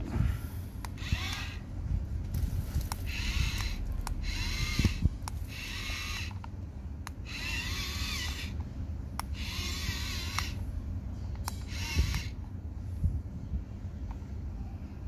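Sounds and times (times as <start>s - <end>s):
toy motor whirring: 1.0s - 1.6s, 2.8s - 6.4s, 7.2s - 8.6s, 9.3s - 10.6s, 11.4s - 12.4s.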